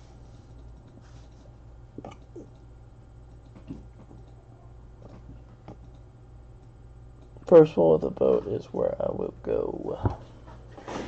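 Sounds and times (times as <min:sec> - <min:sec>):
steady low hum: 0:00.0 - 0:11.0
faint clicks and taps: 0:00.4 - 0:04.4, 0:05.0 - 0:08.9.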